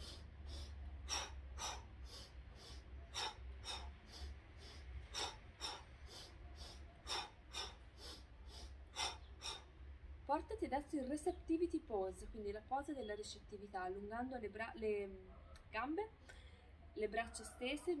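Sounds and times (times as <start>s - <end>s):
woman breathing sharply: 0.0s - 9.8s
steady low hum: 0.0s - 12.4s.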